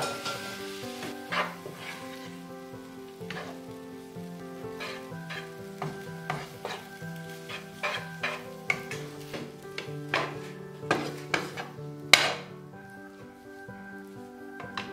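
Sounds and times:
spatula scraping pan: 0:00.0 - 0:02.5, 0:03.1 - 0:12.5
noodles sizzling in frying pan: 0:00.0 - 0:14.9.

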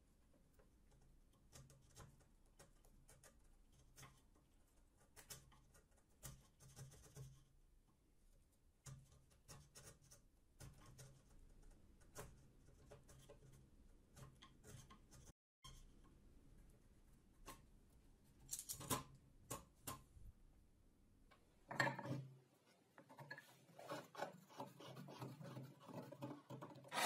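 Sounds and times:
pencil scratching on wood: 0:05.0 - 0:07.6, 0:08.8 - 0:16.0, 0:23.4 - 0:27.0.

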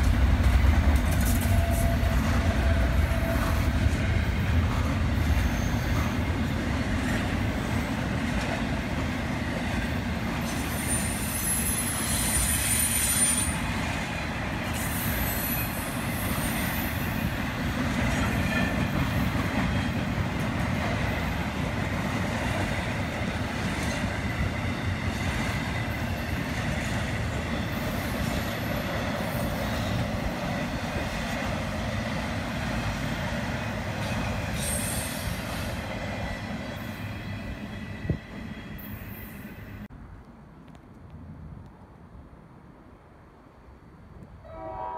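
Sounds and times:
train wheels rumbling on rails: 0:00.0 - 0:39.9
high-pitched wheel squeals: 0:01.3 - 0:03.7, 0:05.2 - 0:06.2, 0:10.7 - 0:13.6.

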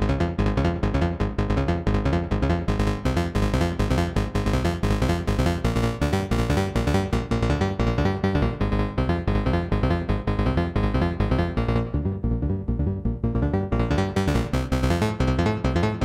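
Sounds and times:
synthesizer rhythmic melody: 0:00.1 - 0:16.0.

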